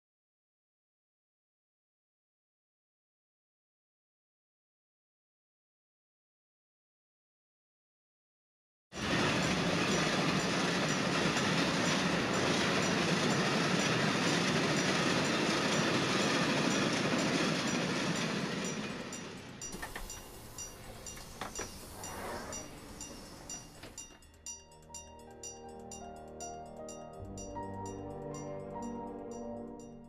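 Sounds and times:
train wheels rumbling on rails: 0:09.0 - 0:30.0.

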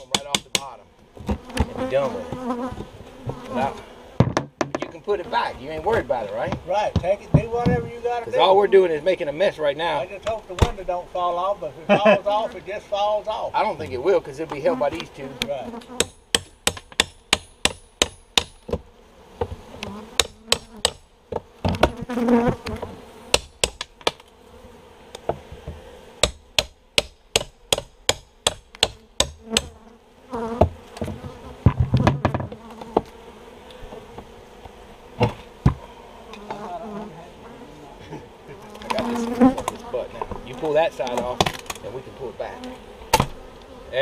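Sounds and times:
bee colony buzzing: 0:00.0 - 0:44.0
pry bar knocking on wood: 0:16.0 - 0:18.8
wooden board creaking and cracking: 0:30.6 - 0:33.2, 0:38.8 - 0:41.9.

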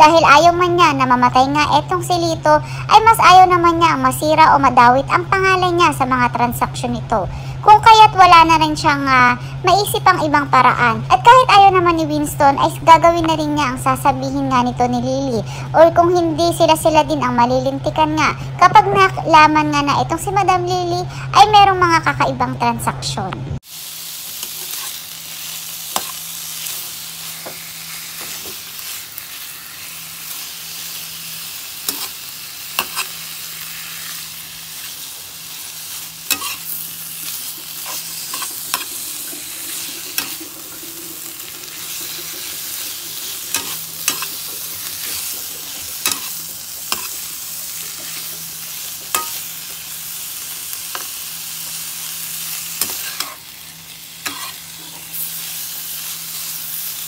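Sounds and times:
pork sizzling in a pan: 0:23.6 - 0:57.0
metal spatula scraping a pan: 0:24.4 - 0:25.0, 0:31.8 - 0:32.2, 0:32.8 - 0:34.2, 0:36.2 - 0:36.8, 0:37.8 - 0:39.0, 0:43.2 - 0:45.3, 0:46.0 - 0:47.2, 0:49.1 - 0:49.5, 0:52.8 - 0:53.4, 0:54.2 - 0:55.2.

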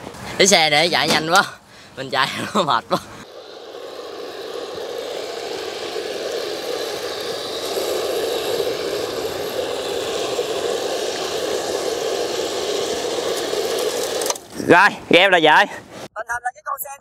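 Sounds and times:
model tank motor and tracks: 0:02.1 - 0:14.7.

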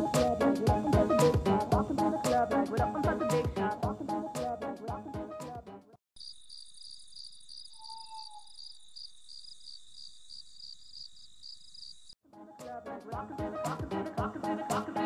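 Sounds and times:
crickets chirping: 0:06.2 - 0:12.2
faint brief tone: 0:07.7 - 0:08.6.

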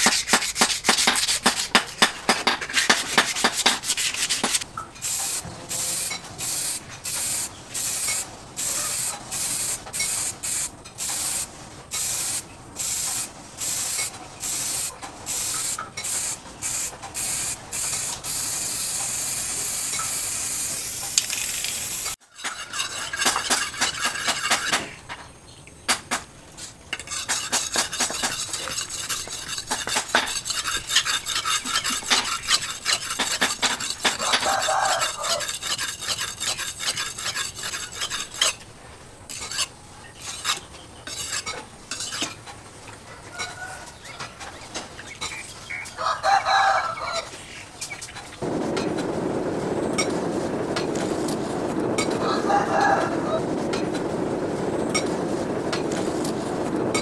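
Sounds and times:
hand sanding wood: 0:00.0 - 0:04.6, 0:22.4 - 0:24.8, 0:27.0 - 0:38.6
aerosol spray can hissing: 0:04.5 - 0:22.2
knife scraping on sharpening stone: 0:22.3 - 0:24.9, 0:27.0 - 0:38.6, 0:39.3 - 0:42.4.

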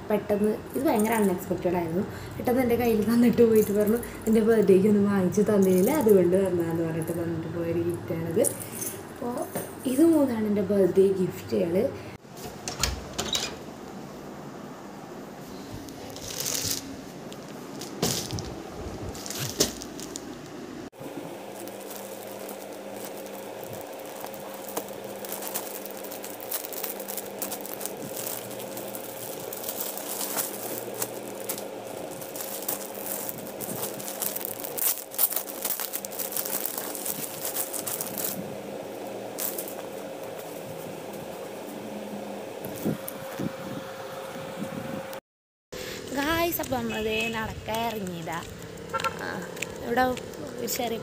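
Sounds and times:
faint steady hum: 0:00.0 - 0:45.2
crinkling handling noises: 0:02.8 - 0:07.4, 0:15.4 - 0:41.8, 0:46.2 - 0:51.0.

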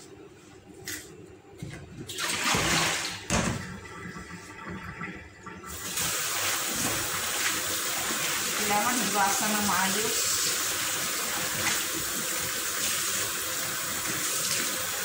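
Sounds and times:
water splashing into metal sink: 0:02.1 - 0:13.3
kitchen tap running: 0:02.1 - 0:15.0.

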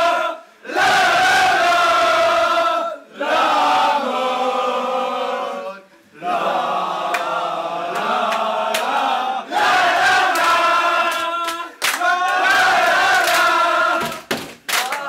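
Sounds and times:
men chanting in unison: 0:00.0 - 0:14.2
claps or stomps: 0:10.4 - 0:15.0.

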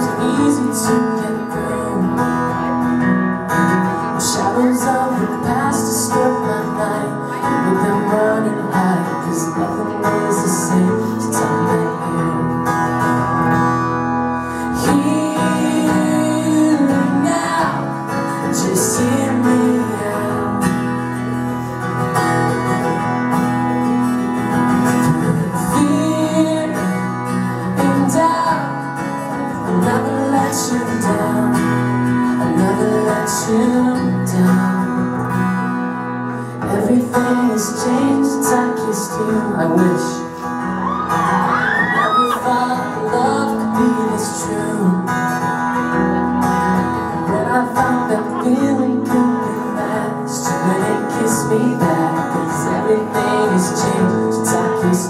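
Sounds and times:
man singing: 0:00.0 - 0:13.8, 0:14.4 - 0:55.0
acoustic guitars strummed: 0:00.0 - 0:55.0.

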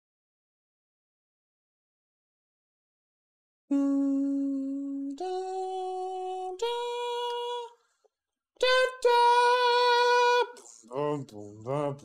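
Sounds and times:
person singing long held notes: 0:03.7 - 0:07.8, 0:08.6 - 0:11.1.

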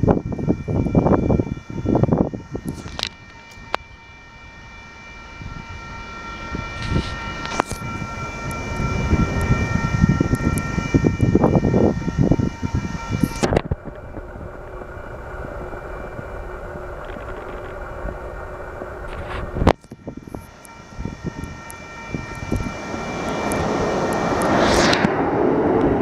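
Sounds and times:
high multi-tone whine: 0:00.0 - 0:26.0.

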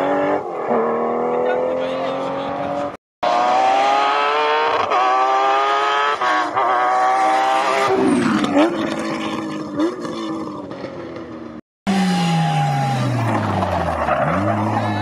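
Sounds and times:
rally car engine at full throttle: 0:00.0 - 0:15.0.

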